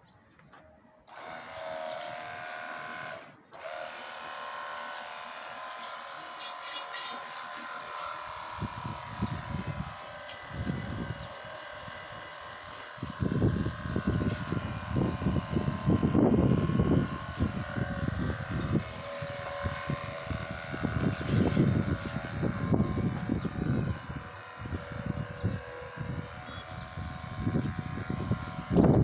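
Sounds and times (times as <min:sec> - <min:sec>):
wind buffeting the microphone: 0:08.5 - 0:12.0, 0:12.9 - 0:29.0.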